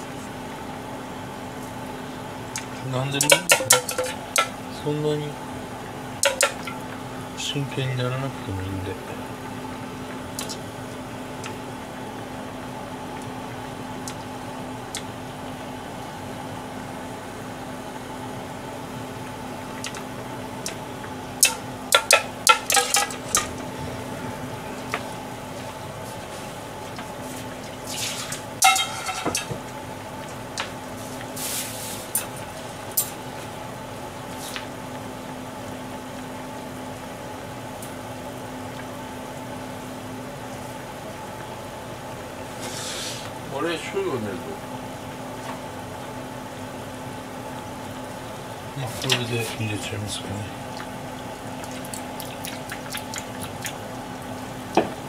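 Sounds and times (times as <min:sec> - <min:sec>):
steady low hum: 0:00.0 - 0:55.0
metal strainer clinking on a pan: 0:03.3 - 0:04.5, 0:28.6 - 0:29.5
food simmering in a pan: 0:09.2 - 0:28.8, 0:50.6 - 0:55.0.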